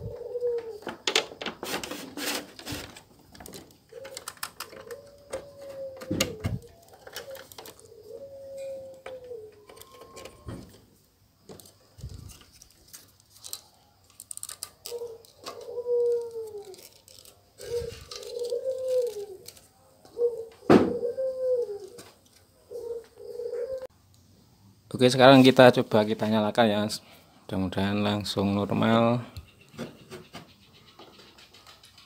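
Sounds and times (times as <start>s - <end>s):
dove cooing: 0.0s - 1.2s, 2.6s - 10.9s, 14.8s - 23.9s
plastic connectors clicking: 3.4s - 7.9s, 12.4s - 17.4s.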